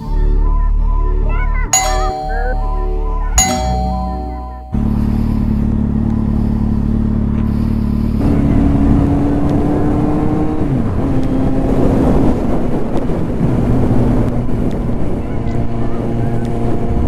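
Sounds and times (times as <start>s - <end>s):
motorcycle engine: 1.8s - 11.8s
rushing wind and road noise: 4.8s - 17.0s.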